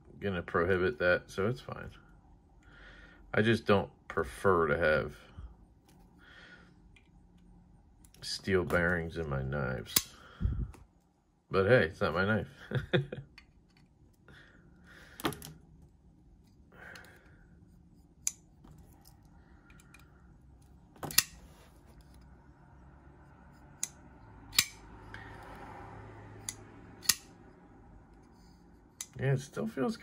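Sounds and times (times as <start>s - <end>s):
soft rubbing: 20.6s - 23.7s
folding knife metal clicks: 23.8s - 24.9s, 26.4s - 27.3s.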